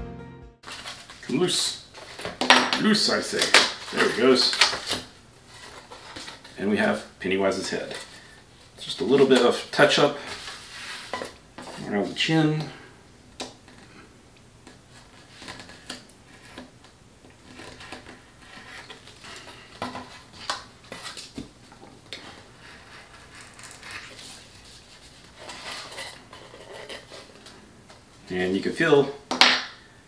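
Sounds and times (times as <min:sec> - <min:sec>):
paper rustling: 0:00.6 - 0:07.0, 0:22.2 - 0:27.6
craft knife scraping paper: 0:17.4 - 0:21.3, 0:22.3 - 0:27.4.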